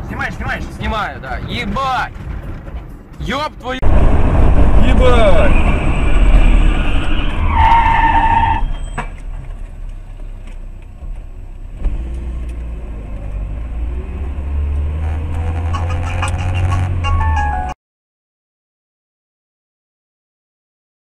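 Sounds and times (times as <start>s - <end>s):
car road and engine rumble: 0.0s - 17.8s
high-pitched squeal: 3.8s - 9.2s, 14.9s - 17.4s.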